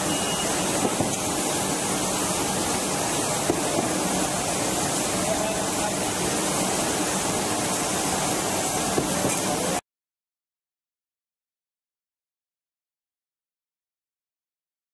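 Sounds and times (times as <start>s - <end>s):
conveyor machinery running: 0.0s - 9.8s.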